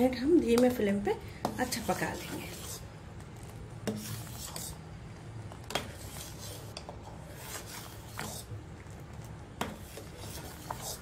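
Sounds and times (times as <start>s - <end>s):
ladle scraping a steel pot: 1.4s - 2.9s, 3.8s - 4.8s, 5.7s - 8.6s, 9.6s - 11.0s.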